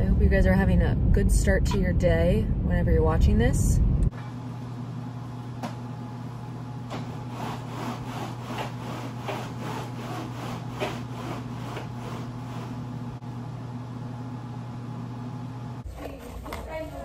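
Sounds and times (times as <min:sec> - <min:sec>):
steady low hum: 0:00.0 - 0:17.0
roller shade cord rasping: 0:06.9 - 0:13.2.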